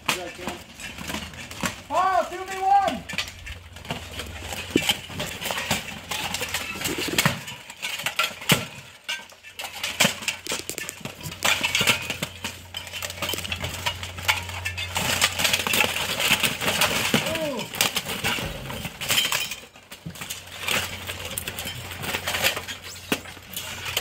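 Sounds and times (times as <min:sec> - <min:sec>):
plate armor clanking and scraping: 0:00.0 - 0:24.0.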